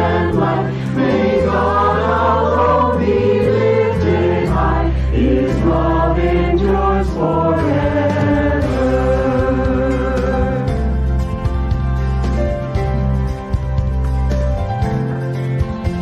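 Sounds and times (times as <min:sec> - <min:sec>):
choir singing a hymn: 0:00.0 - 0:10.8.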